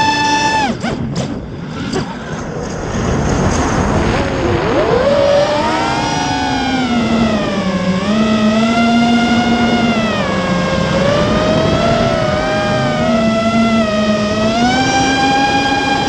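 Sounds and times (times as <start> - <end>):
quadcopter motors whining: 0.0 - 16.0
wind rushing over camera: 0.5 - 16.0.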